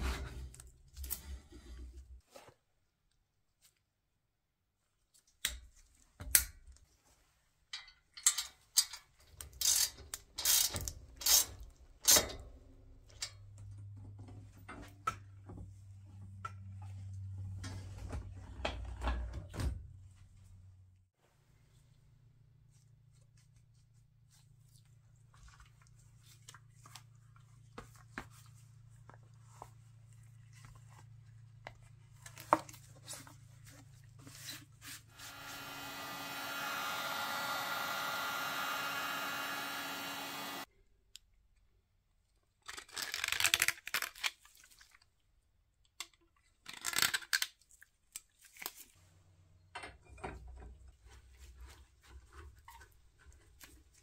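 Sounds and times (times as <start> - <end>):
motor whirring with a whine: 35.2 - 40.6.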